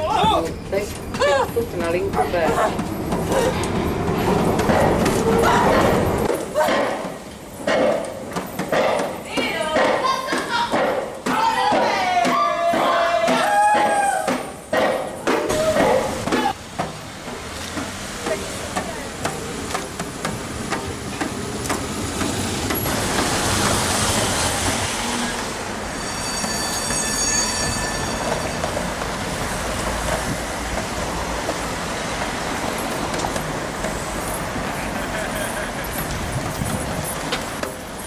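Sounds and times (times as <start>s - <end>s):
tram wheels squealing: 0.0s - 6.6s, 20.4s - 38.0s
tram passing on rails: 0.0s - 8.5s, 15.4s - 38.0s
street traffic: 0.0s - 38.0s.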